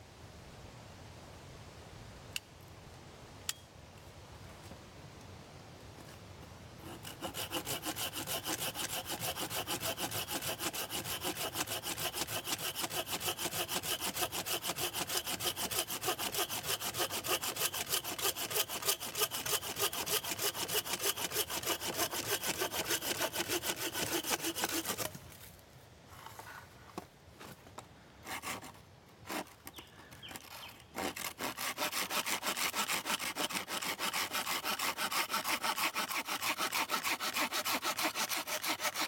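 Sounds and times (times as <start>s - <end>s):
hand saw cutting wood: 6.8s - 25.2s, 28.2s - 39.0s.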